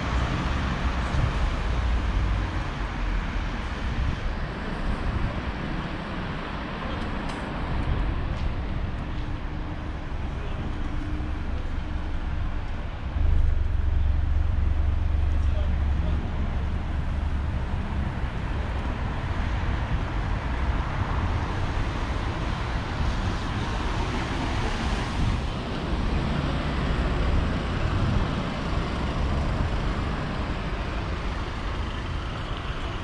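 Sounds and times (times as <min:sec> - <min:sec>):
cars passing: 0:00.0 - 0:33.0
deep low rumble: 0:07.8 - 0:23.3.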